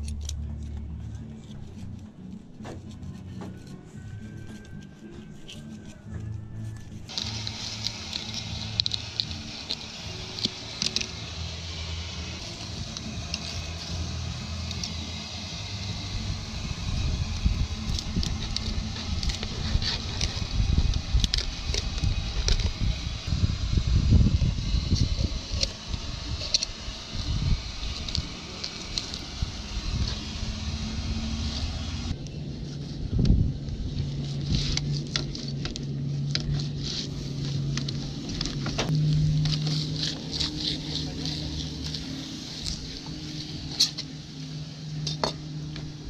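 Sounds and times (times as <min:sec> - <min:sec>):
low steady hum: 0:00.0 - 0:46.0
low uneven rumble: 0:00.0 - 0:46.0
knife scraping fish: 0:39.2 - 0:42.2.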